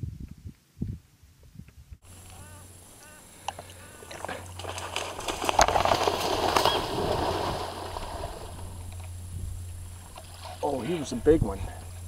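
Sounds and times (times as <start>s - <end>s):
alligator splashing into water: 4.0s - 11.1s.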